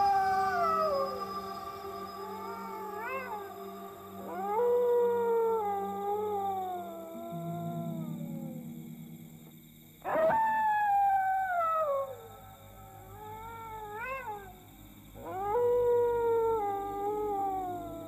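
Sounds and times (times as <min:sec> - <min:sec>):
animal howling: 0:00.0 - 0:08.3.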